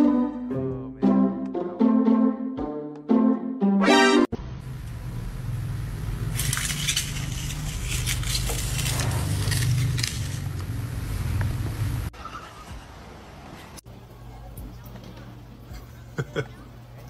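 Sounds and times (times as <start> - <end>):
caster wheels rolling on tile: 6.2 - 11.5
scraping and clattering: 6.4 - 10.6.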